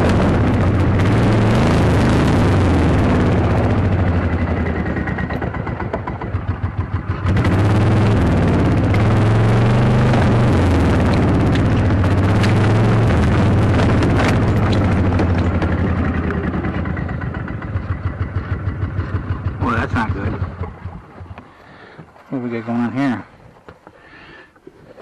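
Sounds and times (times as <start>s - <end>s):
golf cart engine sputtering: 0.0s - 25.0s.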